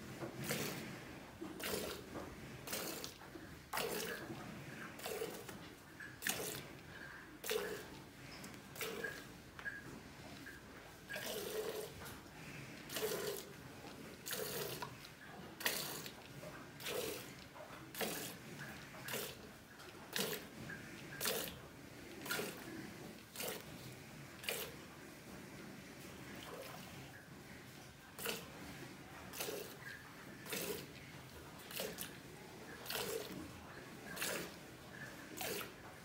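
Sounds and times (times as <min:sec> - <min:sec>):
milk squirting into steel pail: 0:01.6 - 0:04.2, 0:05.0 - 0:06.6, 0:07.4 - 0:08.0, 0:08.8 - 0:09.8, 0:10.4 - 0:12.1, 0:12.8 - 0:13.5, 0:14.2 - 0:19.4, 0:20.1 - 0:21.6, 0:22.2 - 0:24.7, 0:28.2 - 0:28.5, 0:29.3 - 0:30.9, 0:31.6 - 0:33.4, 0:34.1 - 0:35.8.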